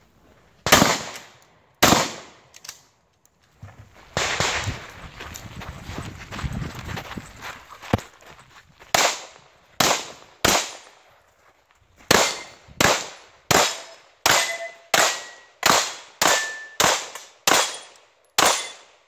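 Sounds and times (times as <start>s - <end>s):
pistol shots with echo: 0.7s - 2.4s, 9.0s - 10.9s, 12.1s - 19.0s.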